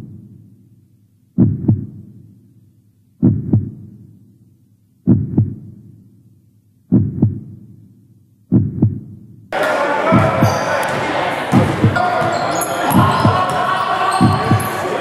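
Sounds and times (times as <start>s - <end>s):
heartbeat thumps: 1.4s - 2.1s, 3.2s - 4.0s, 5.0s - 5.8s, 6.9s - 7.6s, 8.5s - 9.3s, 10.1s - 10.5s, 11.5s - 12.0s, 13.0s - 13.4s, 14.2s - 14.7s.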